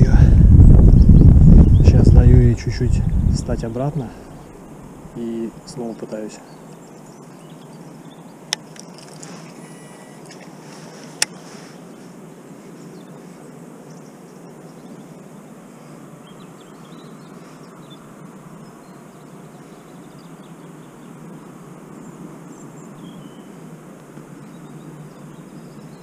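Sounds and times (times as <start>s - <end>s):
outdoor background rush: 0.0s - 26.0s
faint bird chirps: 4.2s - 23.7s.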